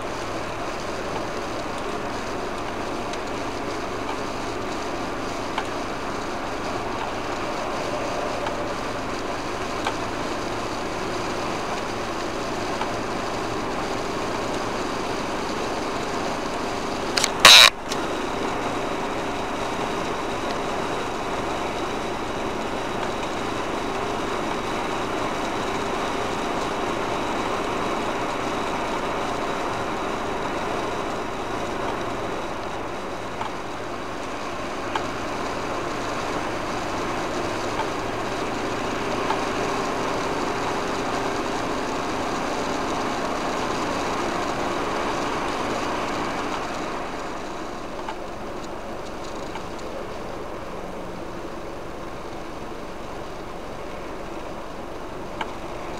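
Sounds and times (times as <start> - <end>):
vehicle engine and tyre noise: 0.0 - 55.9
short loud burst: 17.2 - 17.8.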